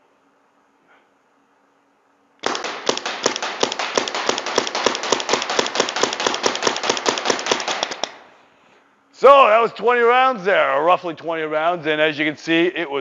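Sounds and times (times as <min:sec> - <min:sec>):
paintball marker shots: 0:02.4 - 0:08.3.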